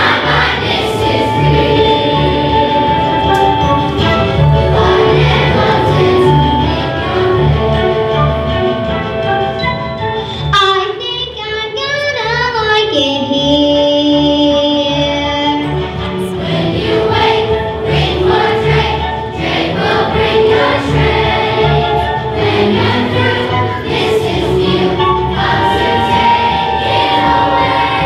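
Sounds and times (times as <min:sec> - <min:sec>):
children singing: 0:00.0 - 0:08.1, 0:16.2 - 0:28.0
instrumental accompaniment with beat: 0:00.0 - 0:10.4.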